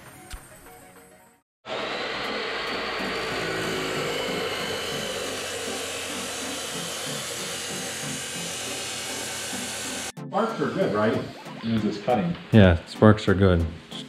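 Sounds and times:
chop saw cutting metal: 1.7s - 10.1s.

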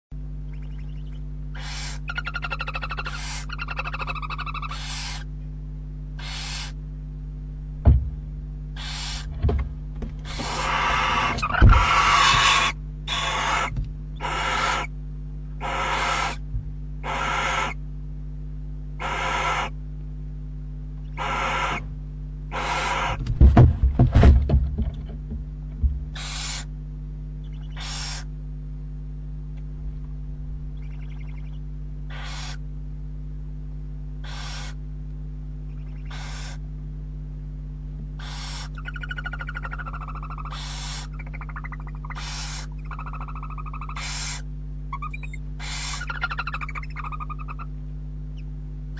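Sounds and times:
low electrical hum: 0.1s - 48.9s
owlet hissing begging calls: 0.5s - 5.3s, 6.2s - 6.8s, 8.8s - 9.3s, 10.2s - 14.9s, 15.6s - 16.4s, 17.0s - 17.8s, 19.0s - 19.8s, 21.1s - 21.8s, 22.5s - 23.2s, 26.2s - 26.7s, 27.5s - 28.3s, 30.8s - 32.6s, 34.2s - 34.8s, 35.7s - 36.6s, 38.2s - 47.7s
wavering twittering call: 0.5s - 5.3s, 6.2s - 6.8s, 8.8s - 9.3s, 10.2s - 14.9s, 15.6s - 16.4s, 17.0s - 17.8s, 19.0s - 19.8s, 21.0s - 21.8s, 22.5s - 23.2s, 26.2s - 26.7s, 27.4s - 28.3s, 30.8s - 32.6s, 34.2s - 34.8s, 35.7s - 36.6s, 38.2s - 47.7s
owl wings flapping and thumping: 7.8s - 12.7s, 22.9s - 26.6s.

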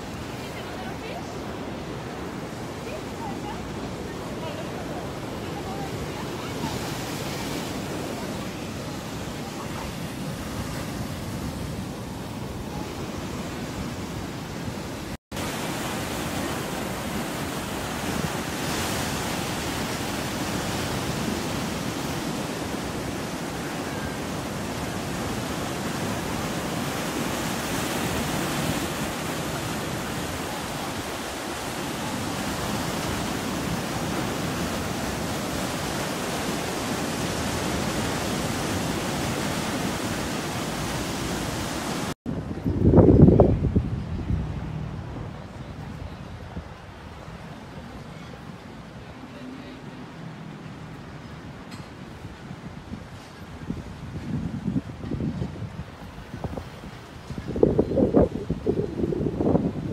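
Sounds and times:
waves breaking on rocky shore: 0.0s - 42.2s
wind rumble on microphone: 0.0s - 49.2s, 50.6s - 59.9s.

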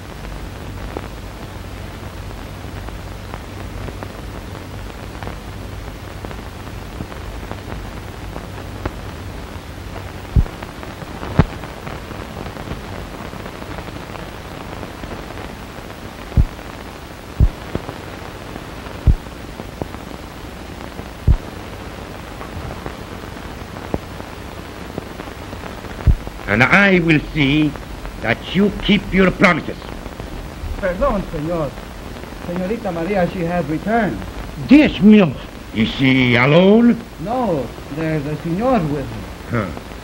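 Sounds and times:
film soundtrack hiss: 0.0s - 40.0s
sharp pops: 21.3s - 21.6s, 26.0s - 26.4s.

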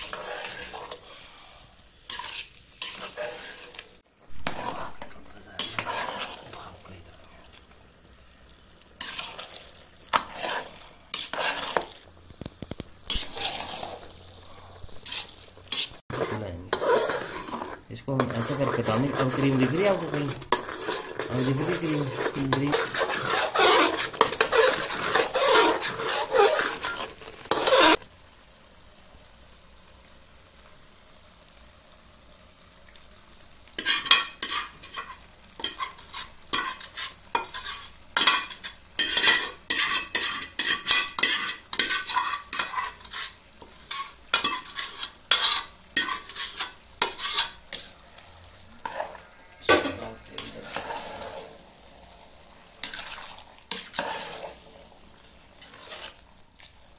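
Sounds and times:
metal spoon scraping in pot: 0.0s - 1.1s, 2.1s - 6.7s, 9.0s - 12.0s, 12.6s - 28.0s, 33.8s - 48.0s, 48.8s - 51.6s, 52.8s - 54.7s, 55.6s - 56.3s.

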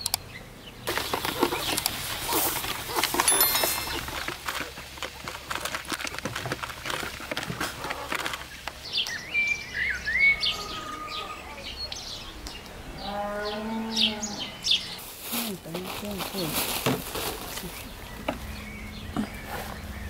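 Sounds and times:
birds chirping and whistling: 0.0s - 4.4s, 8.0s - 15.0s, 17.7s - 20.0s.

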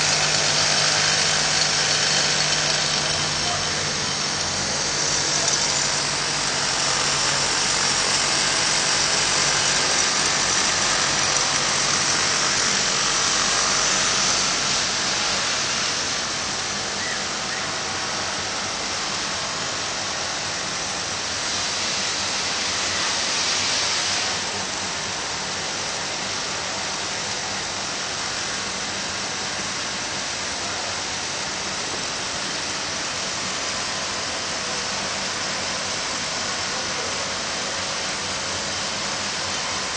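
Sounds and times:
sewing machine whirring: 0.0s - 14.7s.

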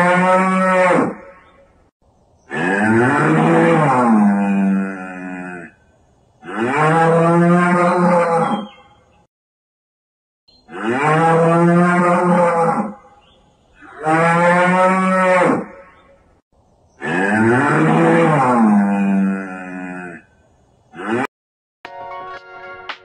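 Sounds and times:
cow mooing: 0.0s - 1.2s, 2.5s - 5.8s, 6.4s - 8.8s, 10.7s - 13.0s, 13.8s - 15.8s, 17.0s - 20.3s, 21.0s - 21.3s.

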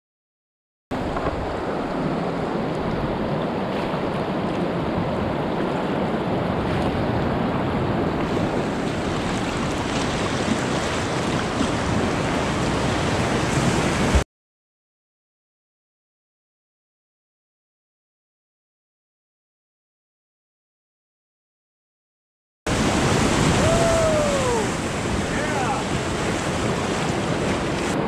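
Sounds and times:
whitewater rapids rushing: 22.7s - 28.0s.

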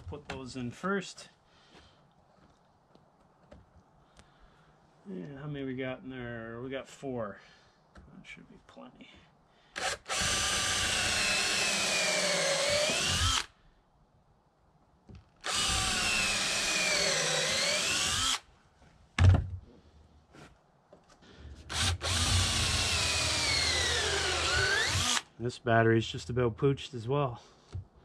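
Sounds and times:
cordless drill driving screws into wood: 9.8s - 13.6s, 15.4s - 18.5s, 21.7s - 25.3s.

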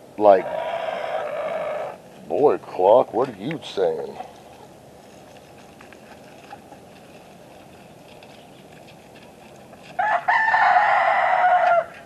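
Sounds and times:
rooster crowing: 10.0s - 12.0s.

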